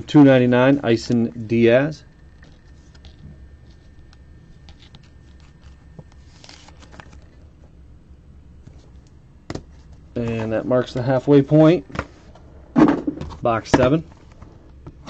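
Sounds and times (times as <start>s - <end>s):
steady low hum: 0.0s - 15.0s
cards and plastic clicking and rustling: 2.4s - 7.4s.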